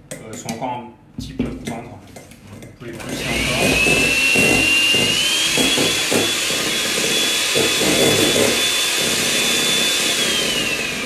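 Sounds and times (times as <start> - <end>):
electric hand mixer whine: 3.0 - 11.0.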